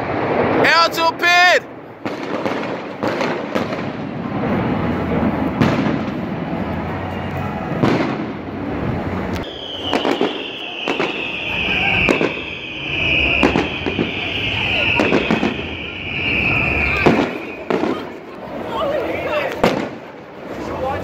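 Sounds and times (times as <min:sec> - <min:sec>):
firework shells bursting: 0:02.0 - 0:04.4, 0:09.3 - 0:18.2
steady rumble: 0:02.8 - 0:09.6
high falling whistling tone: 0:09.4 - 0:17.7.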